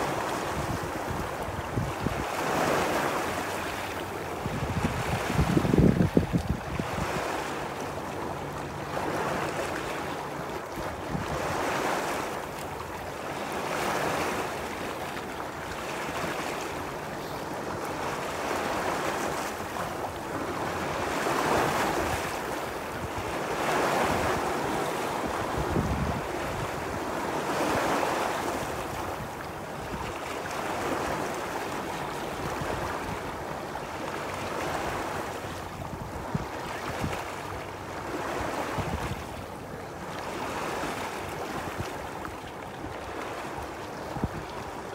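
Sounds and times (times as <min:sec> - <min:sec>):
wind buffeting microphone: 0:00.4 - 0:03.1, 0:04.4 - 0:07.4, 0:23.0 - 0:28.0, 0:38.2 - 0:39.4, 0:44.0 - 0:44.7.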